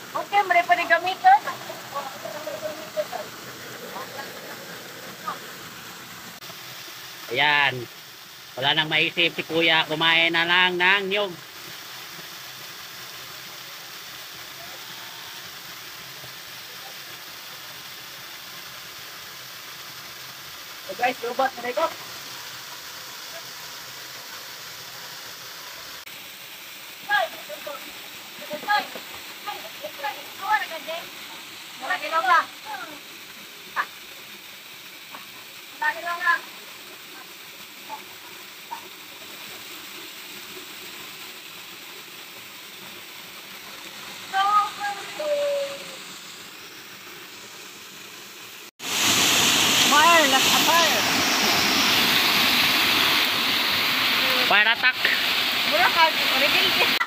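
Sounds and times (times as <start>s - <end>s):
river water rushing: 0.0s - 7.6s, 43.1s - 57.0s
stream water flowing over rocks: 0.0s - 57.0s.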